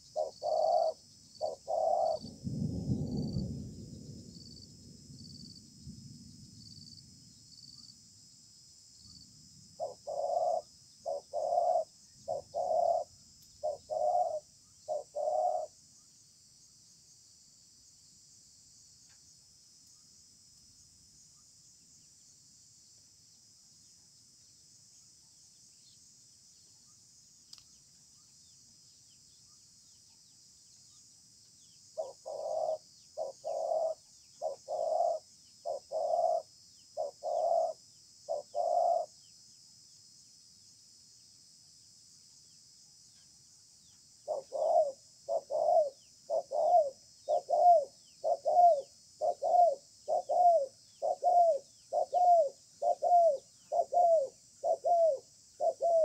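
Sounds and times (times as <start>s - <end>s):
doves cooing: 0.0s - 3.4s, 9.8s - 15.7s, 32.0s - 39.1s, 44.2s - 56.0s
insects trilling: 0.0s - 56.0s.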